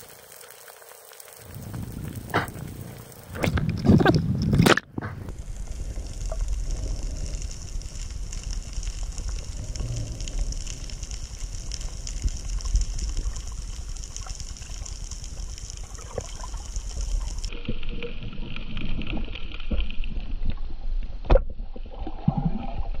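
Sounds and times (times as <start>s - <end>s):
muffled underwater rush: 1.3s - 23.0s
low rumble: 1.5s - 17.6s.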